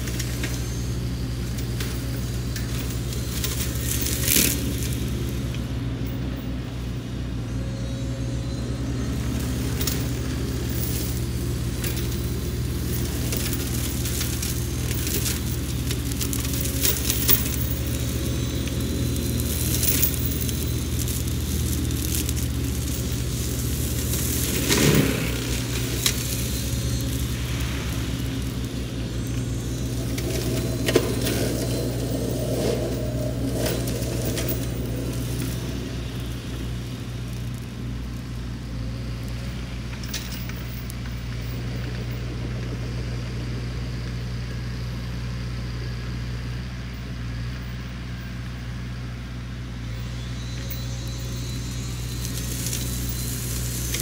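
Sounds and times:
wood cracking and snapping: 0.0s - 5.6s, 9.4s - 38.4s
diesel engine running: 0.0s - 54.0s
mulcher shredding brush: 0.0s - 54.0s.

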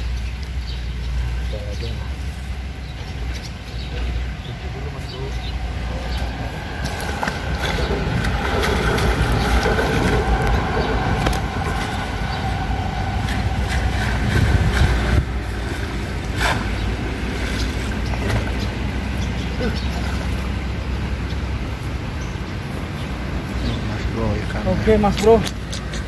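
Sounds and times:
train rumbling with faint whine: 0.0s - 19.6s.

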